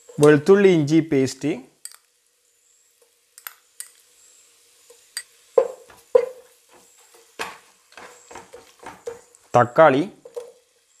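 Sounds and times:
spatula knocking against pot: 5.6s - 6.4s.

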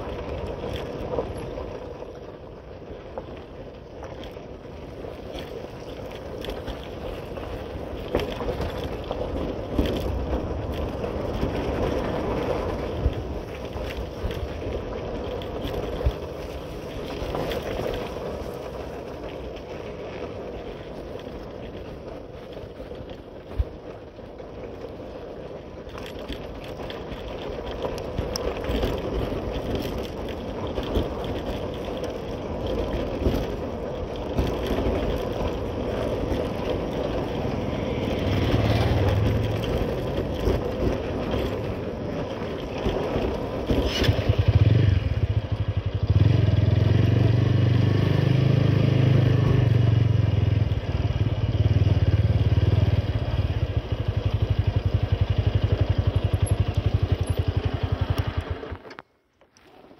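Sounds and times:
wind and road noise: 0.0s - 59.9s
motorcycle engine running: 4.6s - 59.0s.

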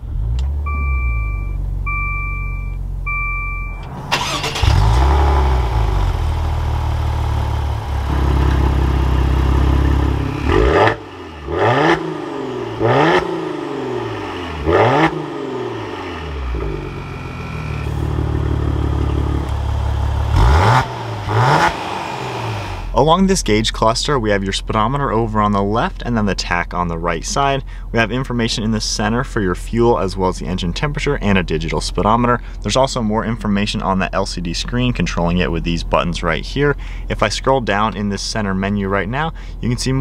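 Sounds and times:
engine throttle blips: 0.0s - 22.9s
car engine idling: 2.8s - 28.8s.

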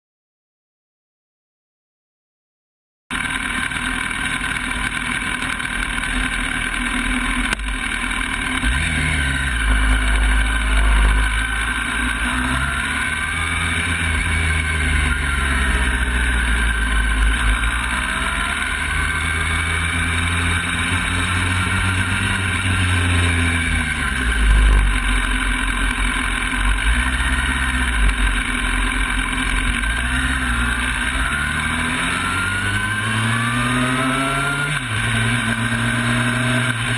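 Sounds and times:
motorcycle engine accelerating: 3.1s - 36.9s.

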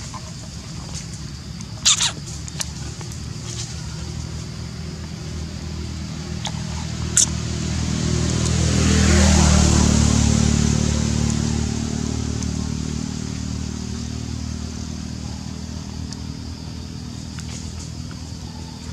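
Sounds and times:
low motor hum: 0.0s - 18.9s
sharp high clicks: 1.7s - 2.8s.

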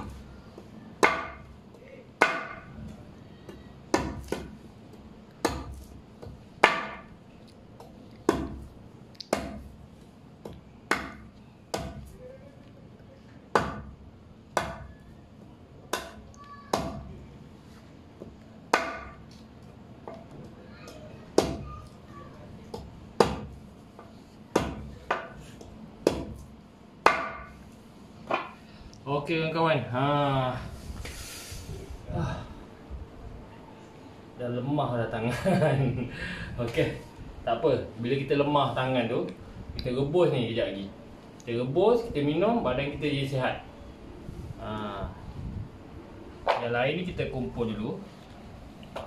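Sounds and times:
wood being chopped: 1.0s - 1.5s, 2.2s - 2.7s, 3.9s - 4.6s, 5.4s - 7.1s, 7.8s - 9.7s, 10.4s - 12.2s, 13.5s - 14.9s, 15.9s - 17.1s, 18.2s - 19.2s, 21.4s - 21.7s, 22.7s - 23.6s, 24.5s - 25.4s, 26.0s - 27.6s.

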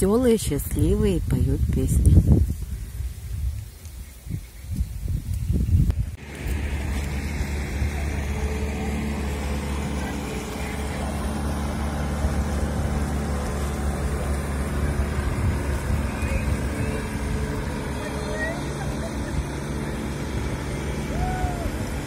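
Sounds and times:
outboard motor humming: 6.1s - 22.0s.

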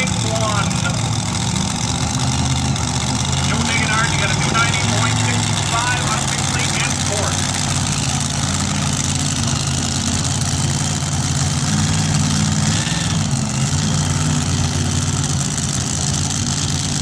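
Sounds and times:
tractor engine idling: 0.0s - 17.0s.

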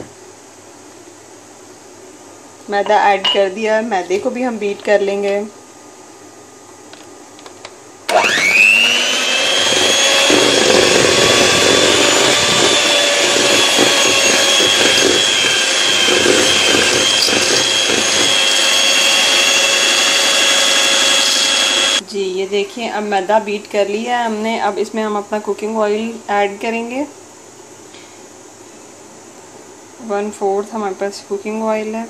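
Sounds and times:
electric hand mixer whine: 8.1s - 22.0s.

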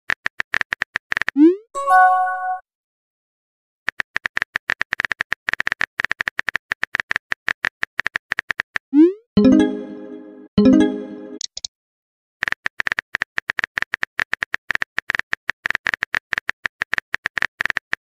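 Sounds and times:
rapid keyboard-like clicks: 0.1s - 1.4s, 3.9s - 8.8s, 12.4s - 18.0s
pitched musical tone: 1.8s - 2.6s, 9.4s - 11.4s.

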